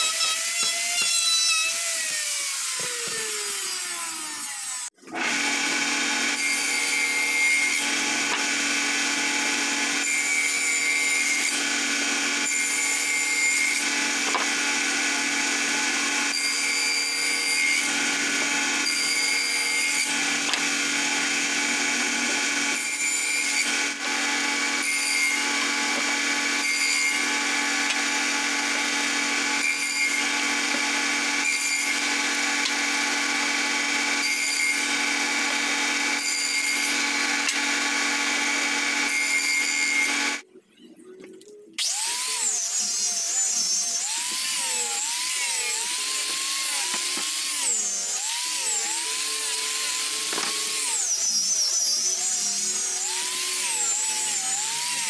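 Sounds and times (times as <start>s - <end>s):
angle grinder with sanding disc: 0.0s - 5.9s, 41.8s - 55.0s
table saw cutting wood: 0.0s - 40.5s, 41.8s - 55.0s.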